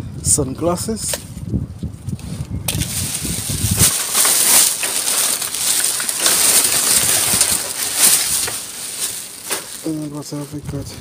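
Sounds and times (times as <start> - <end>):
plastic bags rustling: 2.7 - 11.0.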